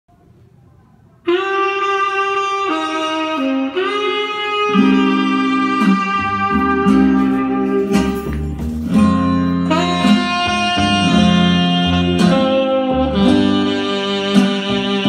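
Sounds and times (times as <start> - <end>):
saxophone melody: 1.2 - 15.0
low chords: 3.3 - 15.0.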